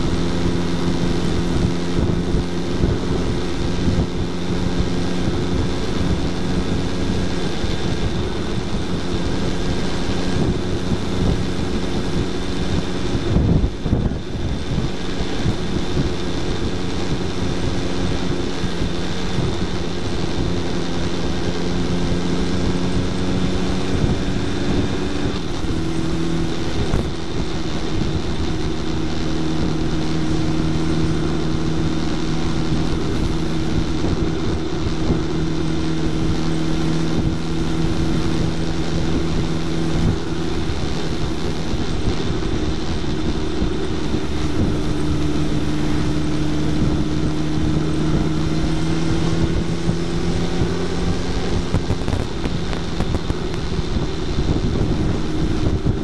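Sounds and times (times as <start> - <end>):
motorcycle engine cruising: 0.0 - 56.0
wind and road noise: 0.0 - 56.0.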